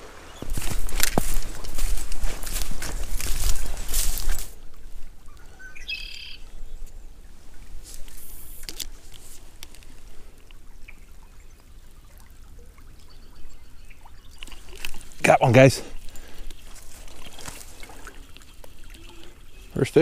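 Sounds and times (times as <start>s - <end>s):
footsteps through grass and snow: 0.0s - 5.4s, 7.3s - 10.3s, 14.5s - 18.7s.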